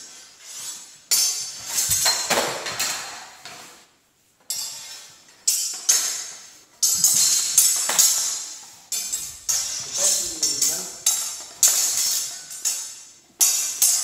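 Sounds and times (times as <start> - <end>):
metallic sword clashes: 5.5 - 14.0.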